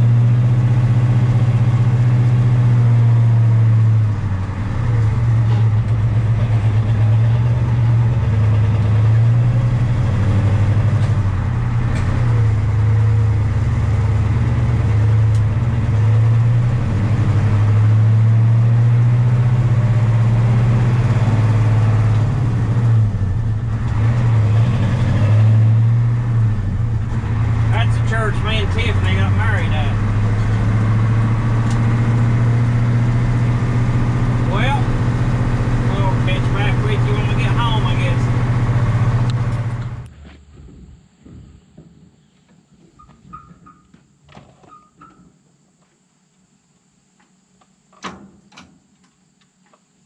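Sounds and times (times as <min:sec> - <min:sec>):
truck engine drone from cab: 0:00.0 - 0:41.4.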